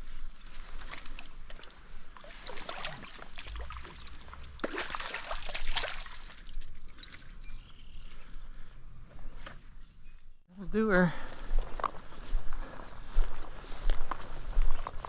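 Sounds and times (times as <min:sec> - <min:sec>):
stream water splashing: 0:00.5 - 0:06.6.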